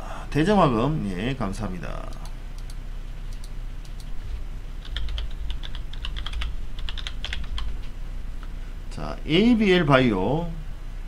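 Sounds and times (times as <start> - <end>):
computer keyboard typing: 4.8 - 7.8.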